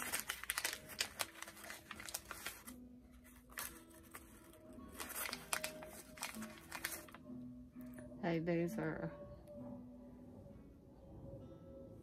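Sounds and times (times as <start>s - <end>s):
packaging rustling and clicking: 0.0s - 7.2s.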